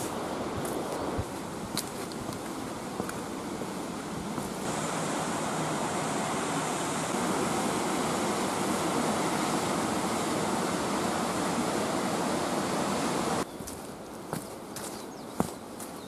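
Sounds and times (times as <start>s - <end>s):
waterfall rushing: 2.6s - 13.4s.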